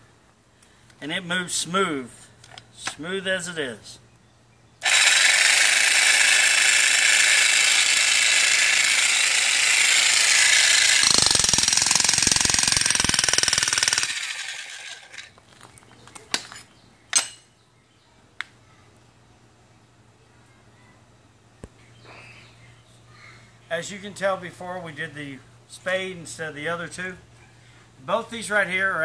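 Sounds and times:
demolition hammer pounding soil: 4.9 - 15.2.

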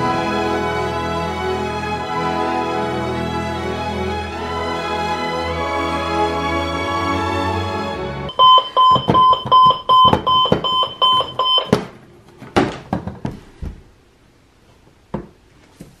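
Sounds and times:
alarm clock beeping: 8.3 - 11.8.

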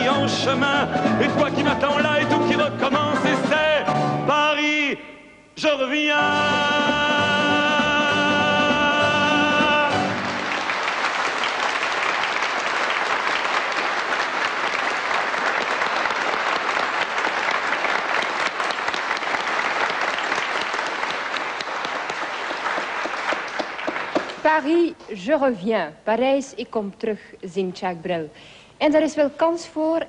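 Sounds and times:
audience applauding: 8.7 - 24.5.

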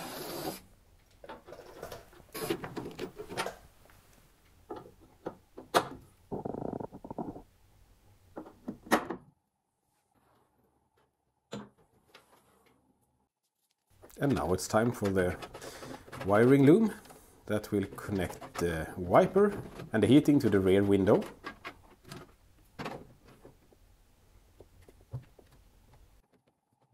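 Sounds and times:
clicks and knocks of parts: 14.0 - 23.8.

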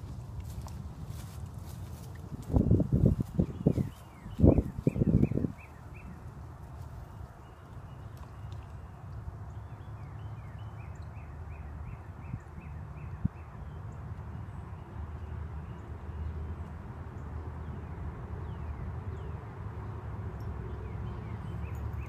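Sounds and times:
bird chirps: 3.1 - 6.2.

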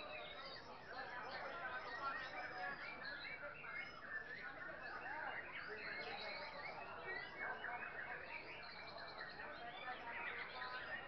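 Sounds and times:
many songbirds singing: 0.0 - 11.0.

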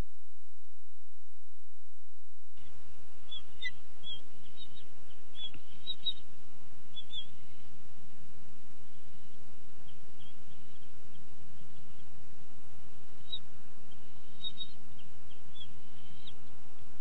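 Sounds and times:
steady outdoor hiss: 0.0 - 17.0
eagles chirping: 2.6 - 7.8, 8.7 - 16.9.

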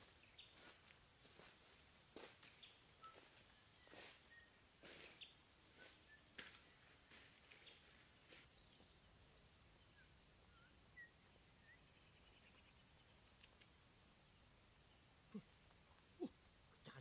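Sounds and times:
footsteps through tall grass: 0.0 - 8.5
faint bird chirps: 0.0 - 17.0.

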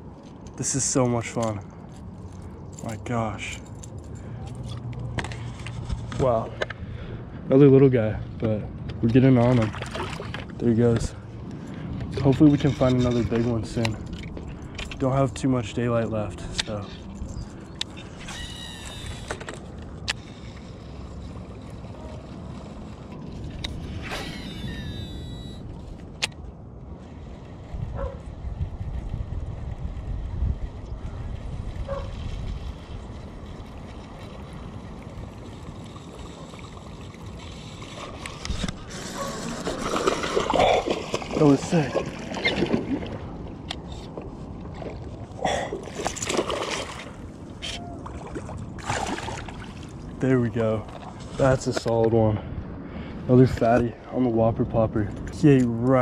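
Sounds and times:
water sloshing and splashing: 9.0 - 15.3, 31.8 - 52.0
fishing reel spool whirring: 18.0 - 25.8
wind rumble on microphone: 20.6 - 45.4
fish splashing at surface: 39.1 - 43.2, 45.7 - 47.2, 48.2 - 49.9.

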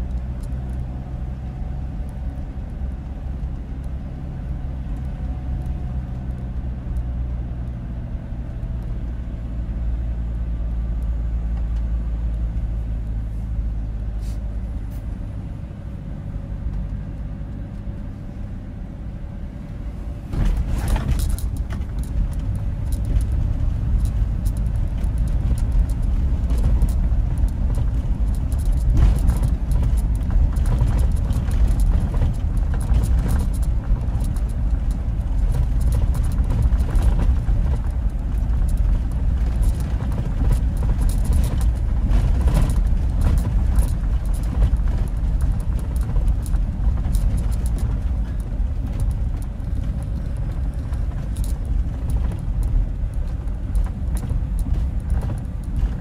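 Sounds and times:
car engine and road rumble: 0.0 - 56.0
crackling and ticking: 21.0 - 56.0.

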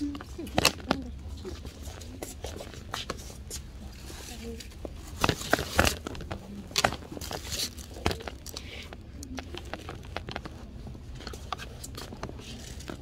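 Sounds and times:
plastic packaging rustling: 3.6 - 13.0.

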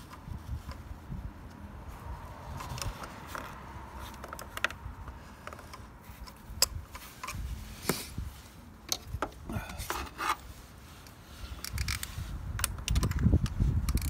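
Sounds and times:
hand tool clicking and scraping: 2.5 - 8.2, 8.8 - 14.0.

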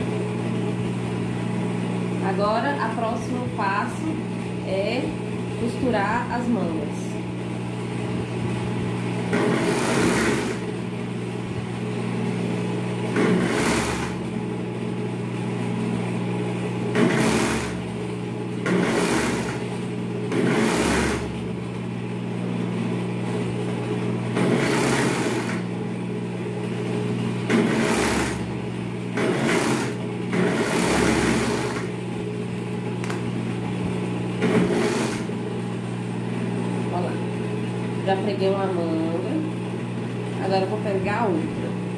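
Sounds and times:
overlock sewing machine stitching: 9.3 - 10.8, 13.0 - 14.4, 16.8 - 18.0, 18.6 - 21.6, 24.3 - 25.8, 27.4 - 32.0, 34.4 - 35.4.

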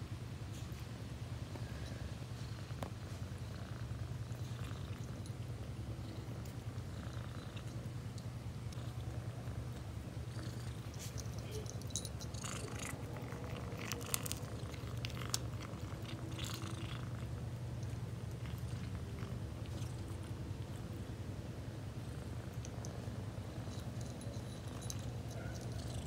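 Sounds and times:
cat purring: 1.5 - 26.0
cat crunchy chewing: 2.5 - 21.0.

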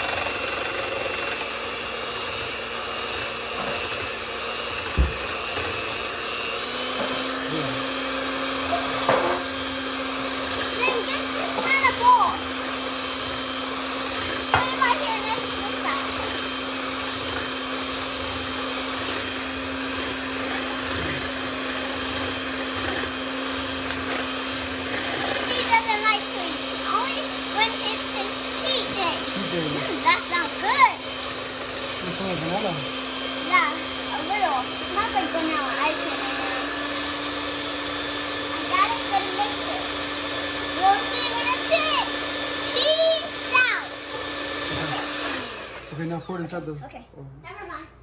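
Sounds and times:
electric hand mixer whirring: 0.0 - 47.0
thump: 4.9 - 5.2.

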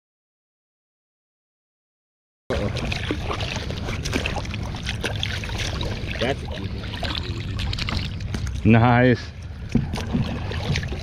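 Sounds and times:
water sloshing and splashing: 2.5 - 11.0.

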